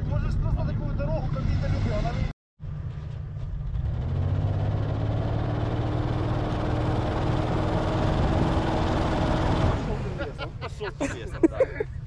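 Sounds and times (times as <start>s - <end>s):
truck engine under throttle: 2.6s - 10.6s.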